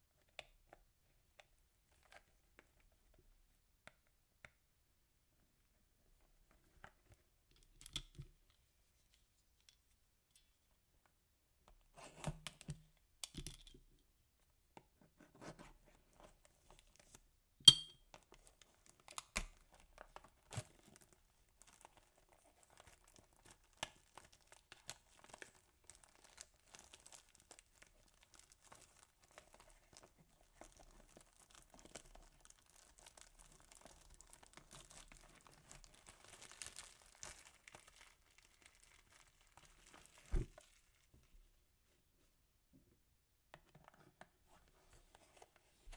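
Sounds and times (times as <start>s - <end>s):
plastic wrap crackling: 18.4s - 41.3s.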